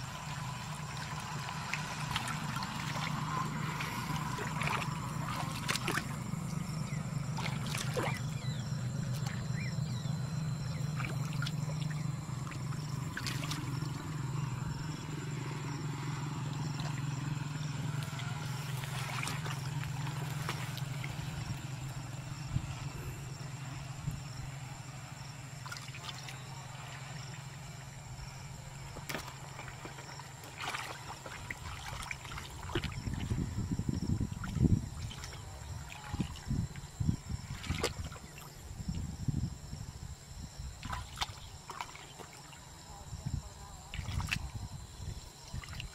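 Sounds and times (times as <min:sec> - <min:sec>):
low hum: 0:00.0 - 0:40.4
hands splashing in muddy water: 0:00.1 - 0:06.2, 0:07.4 - 0:08.3, 0:10.9 - 0:14.1, 0:17.8 - 0:21.3, 0:29.0 - 0:33.3, 0:37.5 - 0:38.4, 0:40.8 - 0:42.5.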